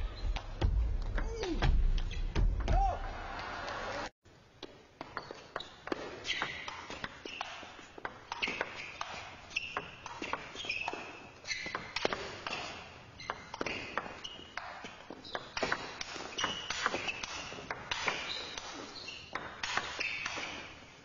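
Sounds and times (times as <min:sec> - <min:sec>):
shoes squeaking on floor: 0:05.0 - 0:21.0.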